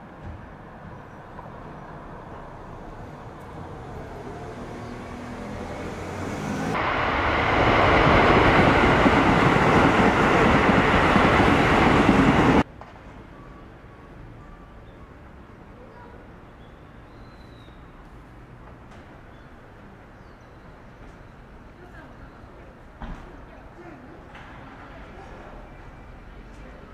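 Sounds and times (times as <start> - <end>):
engine hum: 0.7 - 12.7
vehicle passing: 1.4 - 12.6.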